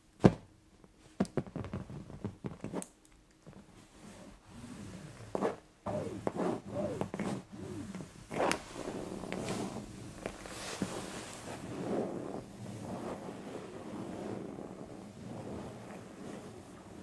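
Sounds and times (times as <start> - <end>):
nails scratching fabric: 4.1 - 17.0.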